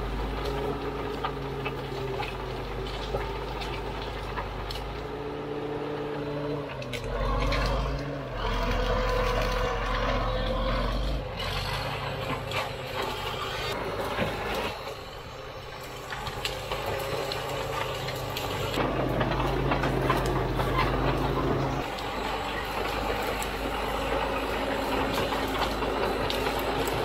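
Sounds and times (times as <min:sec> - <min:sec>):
scrub clattering and crackling: 0:00.0 - 0:05.6, 0:15.8 - 0:27.0
bulldozer diesel engine: 0:00.0 - 0:27.0.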